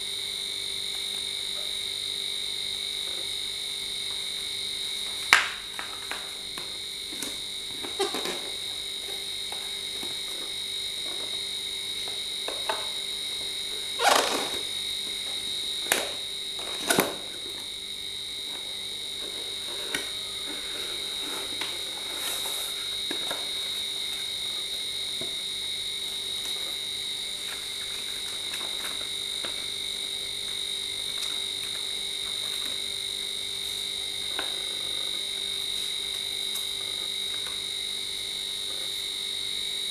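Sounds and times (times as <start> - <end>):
steady high-pitched whine: 0.0 - 39.9
cardboard and paper rustling: 19.2 - 23.9, 27.4 - 29.8.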